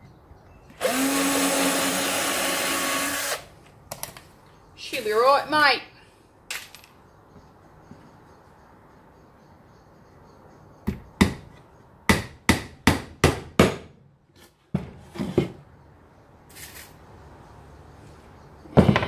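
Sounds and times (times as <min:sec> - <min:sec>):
hammer driving nails into wood: 0:12.1 - 0:14.0.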